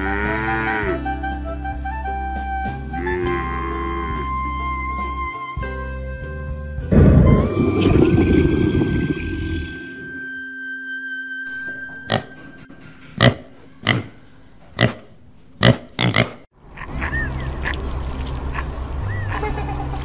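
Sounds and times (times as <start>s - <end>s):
music: 0.0s - 12.7s.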